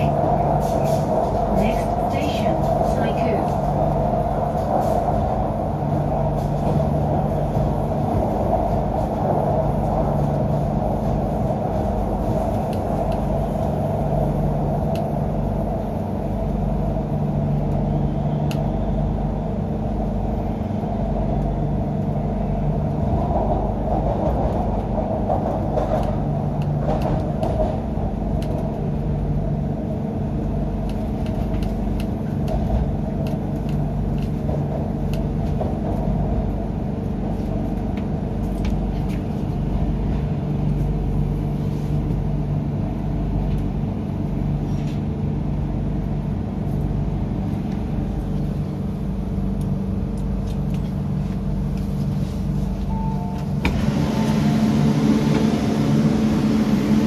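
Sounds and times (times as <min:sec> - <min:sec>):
metro car running rumble: 0:00.0 - 0:57.0.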